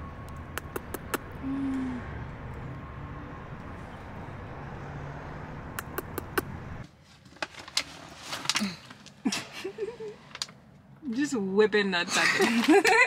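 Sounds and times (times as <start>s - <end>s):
sharp clicks: 0.2s - 1.3s, 5.7s - 6.6s.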